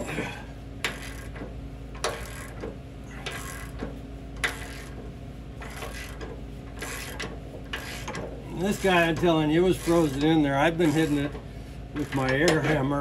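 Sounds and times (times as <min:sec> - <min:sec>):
hand ratchet clicking: 0:00.8 - 0:05.0.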